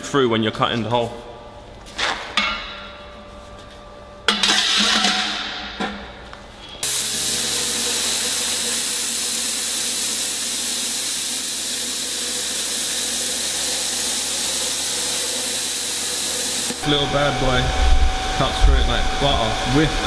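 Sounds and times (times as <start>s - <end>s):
plasma cutter hissing: 6.8s - 17.6s.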